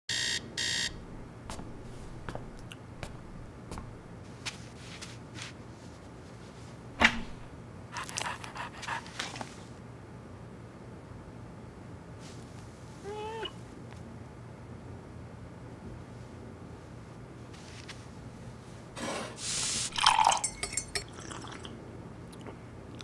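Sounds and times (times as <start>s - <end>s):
digital alarm clock beeping: 0.1s - 0.9s.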